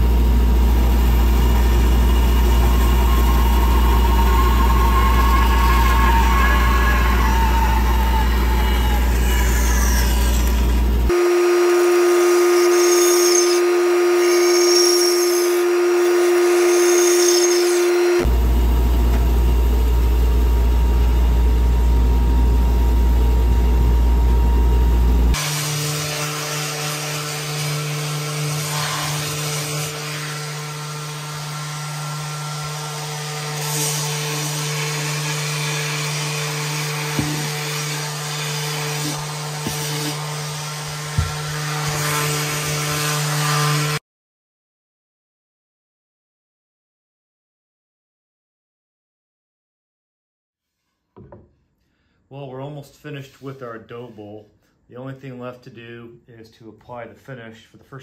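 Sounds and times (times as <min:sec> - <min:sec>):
steady machine tone: 0:00.0 - 0:10.2
orbit sander running: 0:00.0 - 0:44.0
bandsaw cutting wood: 0:01.0 - 0:18.3, 0:25.3 - 0:44.0.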